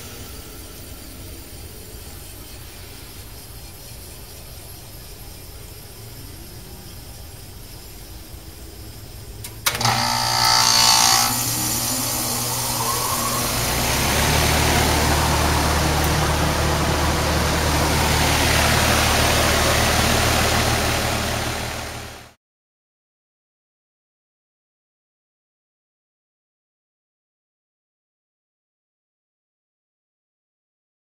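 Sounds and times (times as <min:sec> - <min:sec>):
heat pump humming: 0:09.3 - 0:22.3.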